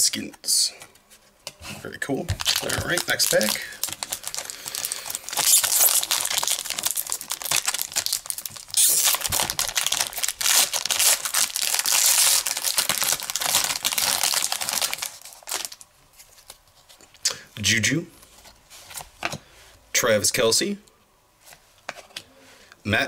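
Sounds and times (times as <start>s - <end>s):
card pack wrapper tearing and crinkling: 2.4s - 16.6s.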